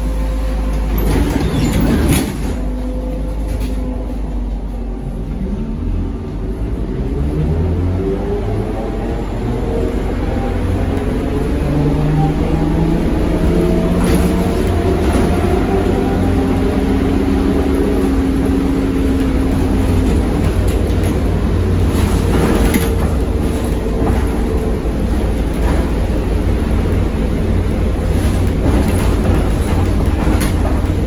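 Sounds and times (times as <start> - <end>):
bus interior rumble: 0.0 - 31.0
body knocks and rattles: 28.0 - 31.0.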